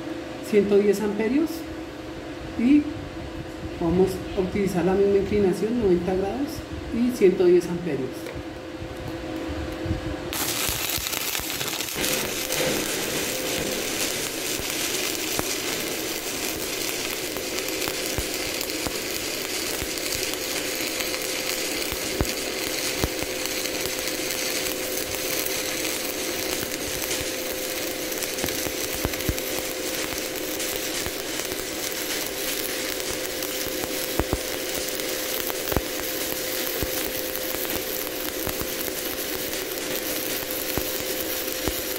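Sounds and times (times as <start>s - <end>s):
welding arc crackle and hiss: 0.0s - 1.6s, 2.6s - 41.9s
steady hum: 0.0s - 41.9s
spatter pops: 10.3s - 41.9s.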